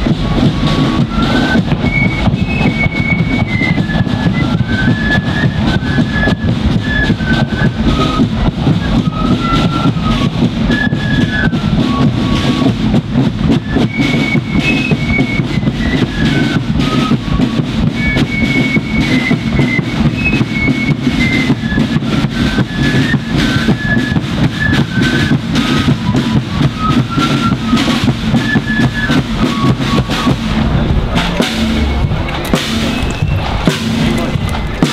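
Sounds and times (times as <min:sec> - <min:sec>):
flutes playing marching tune: 0:00.0 - 0:34.9
side drum strokes: 0:00.0 - 0:34.9
bass drum beat: 0:27.6 - 0:34.9.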